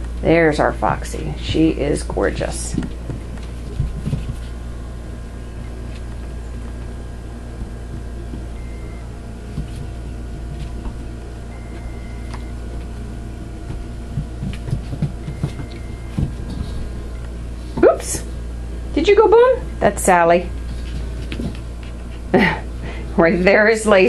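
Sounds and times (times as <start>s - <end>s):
steady low hum: 0.0s - 24.0s
soft knocks and rustles: 2.7s - 4.6s.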